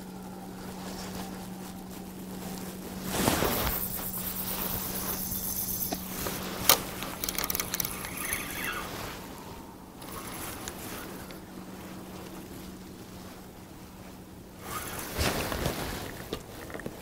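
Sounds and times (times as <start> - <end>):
steady low hum: 0.0 - 17.0
fishing rod clicks and rattles: 3.6 - 8.9, 10.0 - 11.4.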